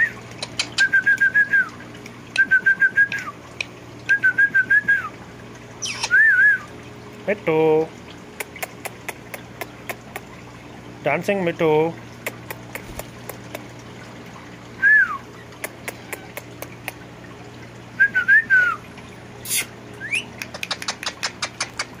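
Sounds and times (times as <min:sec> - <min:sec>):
whistled notes: 0:20.0 - 0:20.3.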